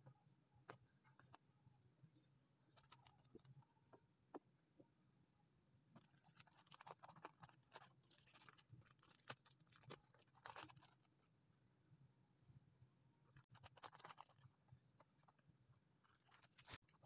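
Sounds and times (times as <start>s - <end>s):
plastic crackles and clicks: 2.7s - 3.6s
plastic packaging crinkling: 6.0s - 11.2s, 13.5s - 14.4s, 16.0s - 17.0s.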